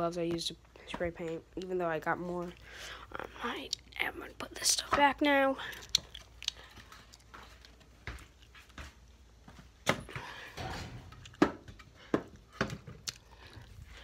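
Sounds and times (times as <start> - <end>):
objects knocking and clunking: 9.8 - 14.0.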